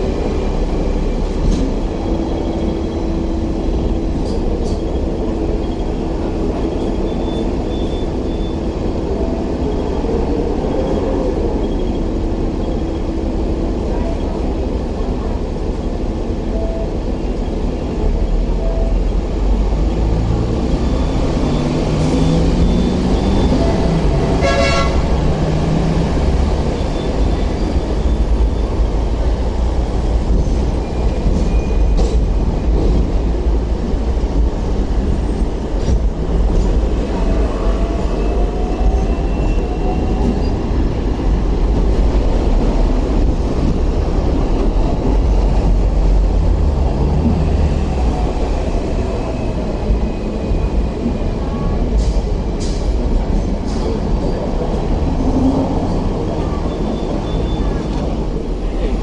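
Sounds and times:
tram motor whine: 0.0 - 59.0
tram rumbling on rails: 0.0 - 59.0
tram horn toot: 21.1 - 28.8.

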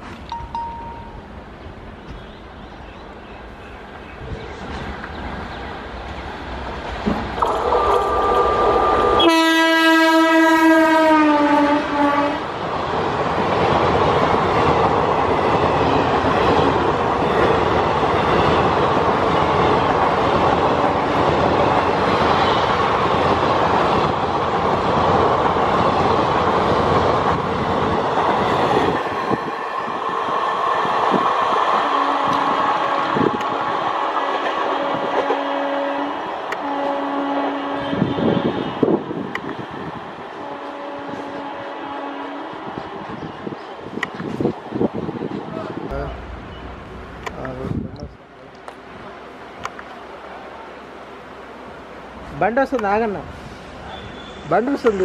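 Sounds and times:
train wheels rumbling and clattering: 3.9 - 9.2, 12.5 - 35.4, 42.6 - 55.0
locomotive horn: 7.4 - 12.5, 31.8 - 33.5, 34.2 - 39.0, 40.4 - 42.7.

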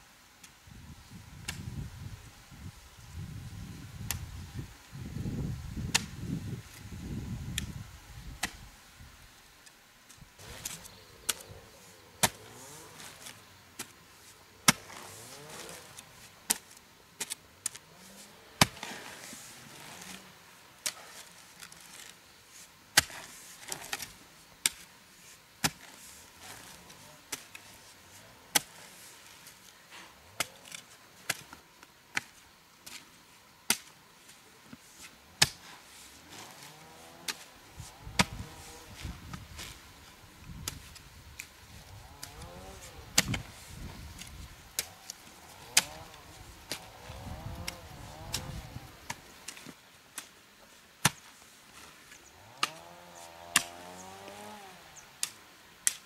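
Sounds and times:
hoe chopping into soil: 10.5 - 11.5, 12.2 - 13.9, 14.6 - 20.2, 22.9 - 24.9, 28.5 - 28.9, 35.0 - 39.8, 40.5 - 41.5, 42.1 - 50.3, 52.6 - 52.9, 53.5 - 56.0.

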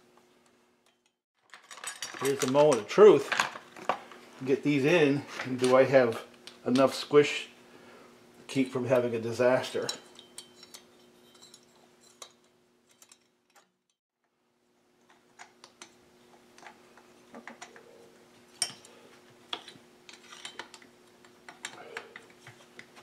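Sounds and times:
faint steady hum: 2.0 - 13.6.

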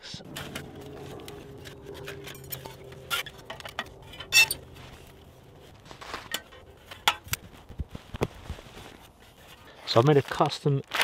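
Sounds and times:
metal camping gear clinking: 0.3 - 7.8.

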